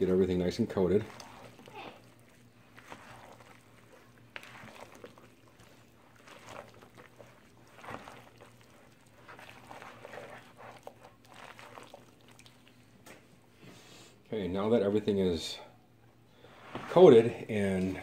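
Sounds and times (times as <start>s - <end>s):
spatula squelching and scraping: 0.0s - 14.0s.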